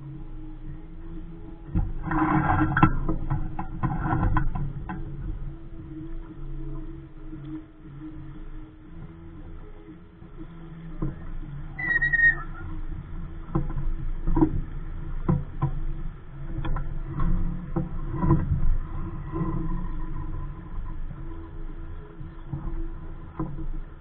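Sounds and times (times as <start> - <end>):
low steady hum: 0.0 - 24.0
knocks and thumps on sailboat: 0.1 - 24.0
short high tone: 11.8 - 12.6.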